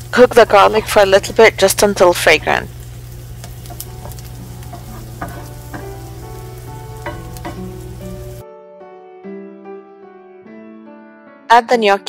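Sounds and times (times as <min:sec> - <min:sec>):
onion sizzling in frying pan: 0:00.0 - 0:08.4
wooden spoon scraping: 0:03.5 - 0:07.7
spoon knocking against pan: 0:03.6 - 0:08.3.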